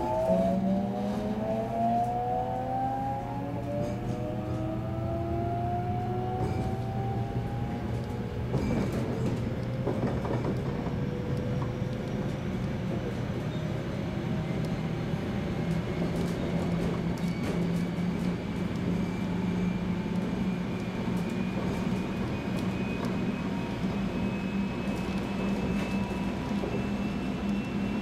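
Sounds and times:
train running on rails: 0:00.0 - 0:28.0.

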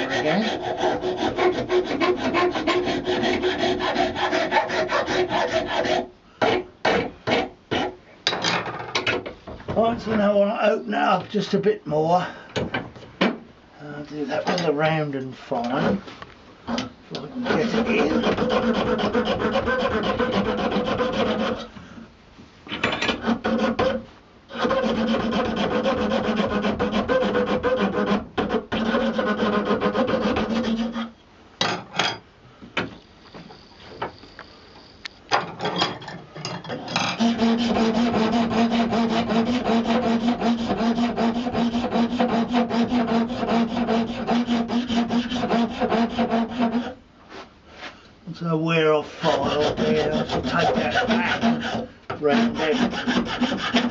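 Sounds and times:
hand file rasping on horn: 0:00.0 - 0:07.9, 0:17.4 - 0:21.7, 0:23.2 - 0:31.1, 0:37.1 - 0:47.0, 0:49.2 - 0:53.9.

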